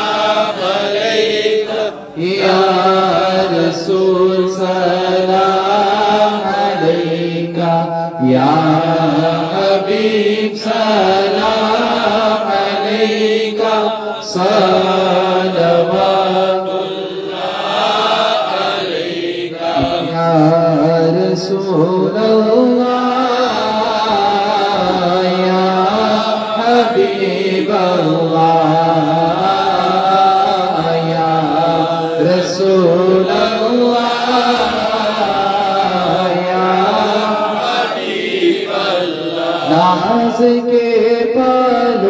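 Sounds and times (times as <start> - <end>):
man singing through pa: 0.0 - 42.0
men singing along: 0.0 - 42.0.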